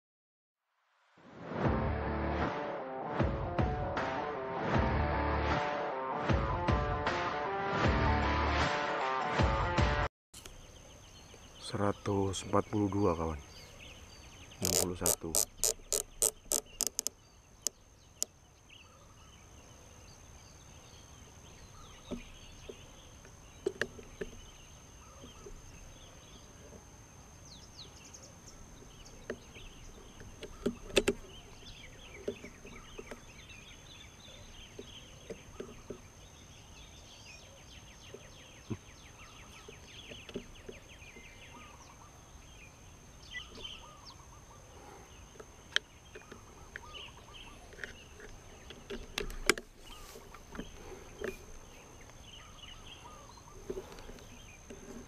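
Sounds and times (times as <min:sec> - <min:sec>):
small birds chirping: 0:10.4 - 0:55.0
scope turret clicks: 0:14.6 - 0:18.3.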